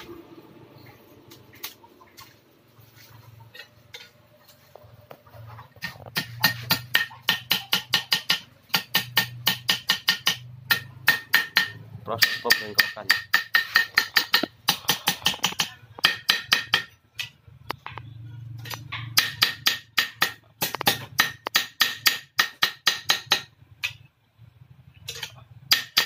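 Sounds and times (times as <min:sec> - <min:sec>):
hammer striking metal blade on anvil: 0:06.2 - 0:16.9, 0:25.1 - 0:26.0.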